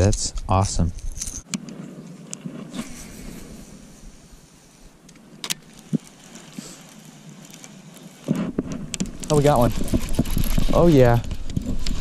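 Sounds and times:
fishing reel whirring: 5.7s - 8.3s.

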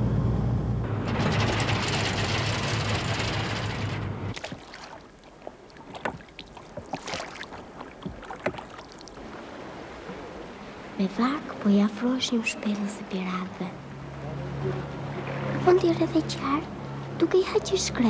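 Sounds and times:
boat engine hum: 0.0s - 18.0s
water rushing past bow: 0.8s - 18.0s
small splashes: 4.3s - 11.0s
water lapping: 4.3s - 18.0s.

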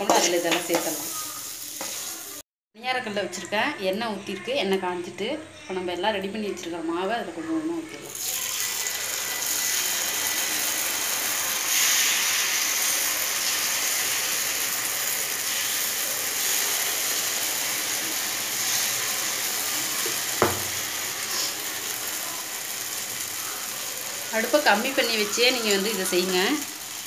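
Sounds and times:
batter sizzling in hot oil: 0.0s - 2.4s, 8.0s - 27.0s.

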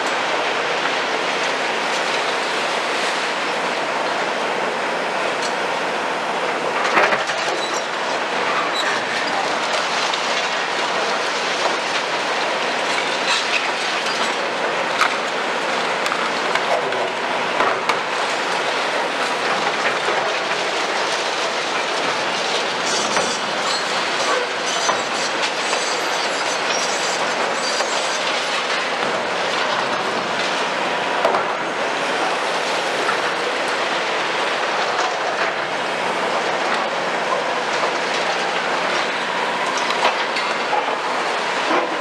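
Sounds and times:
excavators scraping rubble: 18.7s - 28.8s.

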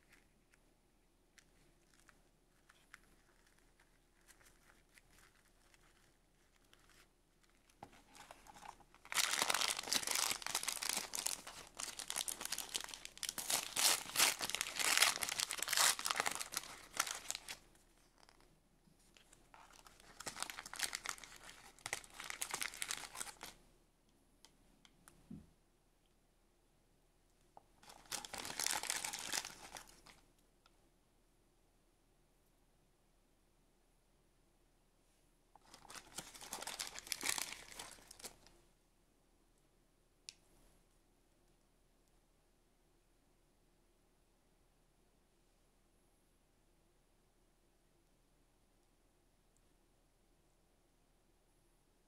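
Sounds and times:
wrapper crinkling: 1.4s - 18.4s, 19.2s - 23.6s, 27.8s - 30.2s, 35.6s - 38.5s.

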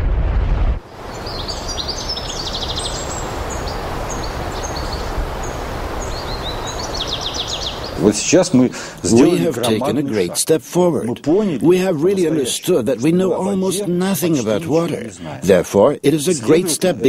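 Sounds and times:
deep rumble: 0.0s - 1.7s
forest background noise: 0.8s - 10.4s
small birds calling: 0.9s - 9.6s
rapid trilled bird notes: 1.0s - 8.7s.

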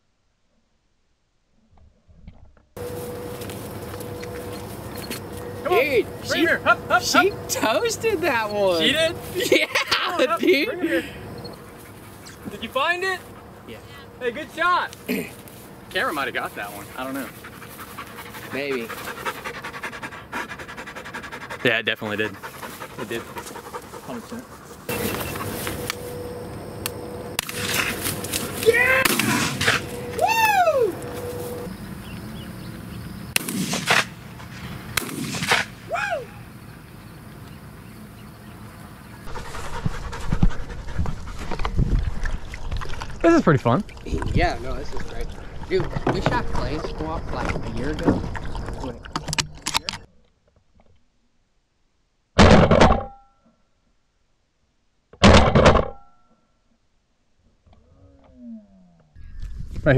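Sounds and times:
short high cries: 28.6s - 31.7s, 35.9s - 36.5s
shotgun shots: 29.0s - 29.8s, 33.4s - 35.8s.

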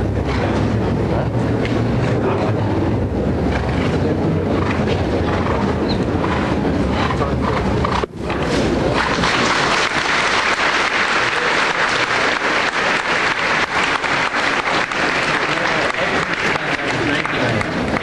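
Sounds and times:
crowd applauding: 8.9s - 18.0s.

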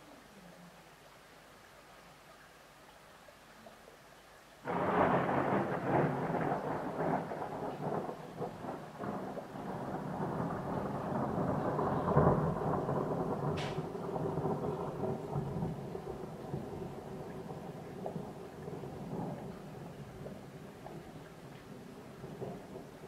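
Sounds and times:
rain: 0.0s - 23.0s
thunder rolling with crackling: 4.6s - 23.0s.

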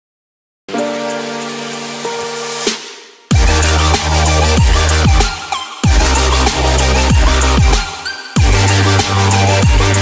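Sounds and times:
electronic music with heavy bass: 0.7s - 10.0s.

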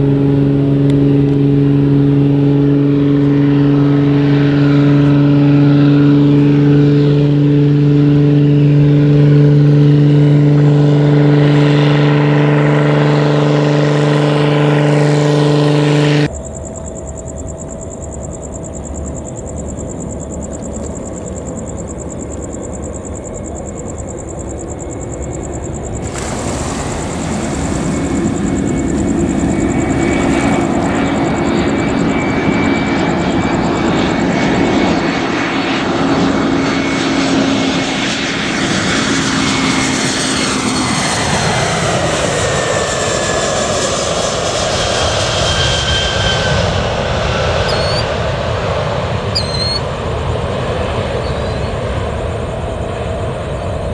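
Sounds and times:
distant jet engines: 0.0s - 53.9s
light aircraft engine and propeller: 0.0s - 53.9s.

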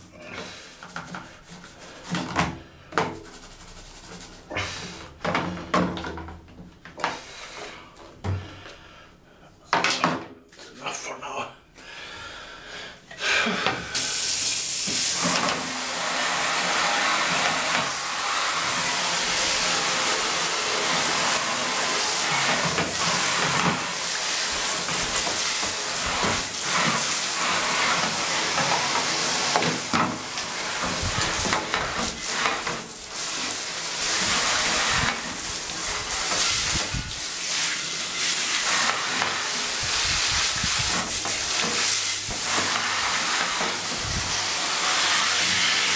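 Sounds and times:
water spraying hiss: 13.9s - 45.9s.

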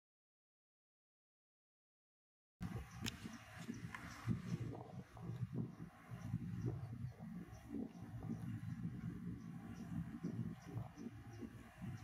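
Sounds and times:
wind rumble on microphone: 2.6s - 12.0s
faint high bird chirps: 2.7s - 12.0s.

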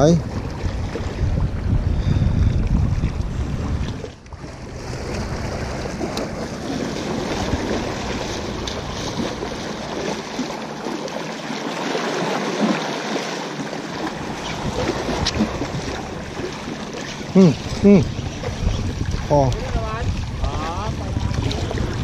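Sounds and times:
wind buffeting microphone: 0.0s - 11.2s, 13.9s - 22.0s
small waves washing against rocks: 3.2s - 22.0s.

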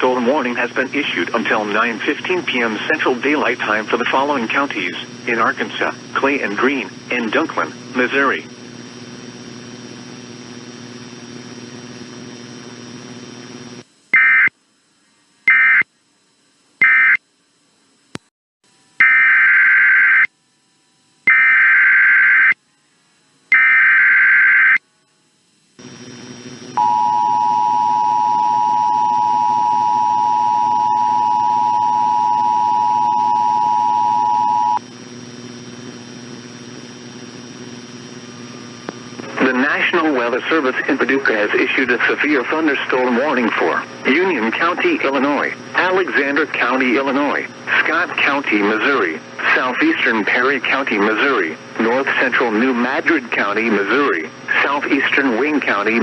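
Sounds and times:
steady background hum: 0.0s - 56.0s
screeching data bursts: 14.1s - 14.5s, 15.5s - 15.8s, 16.8s - 17.2s, 19.0s - 20.3s, 21.3s - 22.6s, 23.5s - 24.8s
two-tone attention signal: 26.8s - 34.8s.

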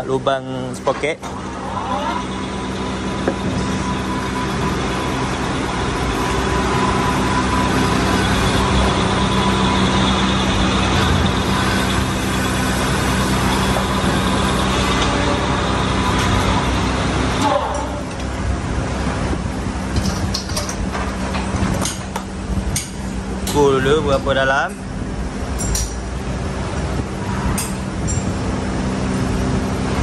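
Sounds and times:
metal lathe running: 0.8s - 30.0s
thin high whine: 1.3s - 18.8s.

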